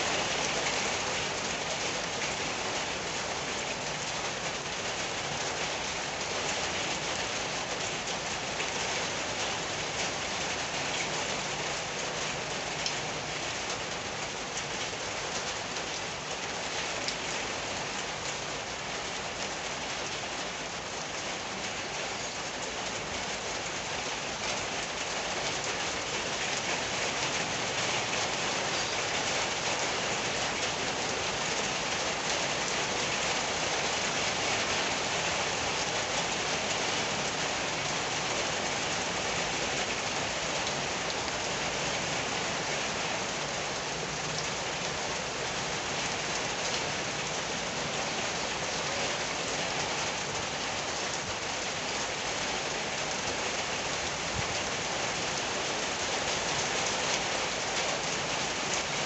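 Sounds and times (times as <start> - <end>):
steady rain falling: 0.0 - 59.0.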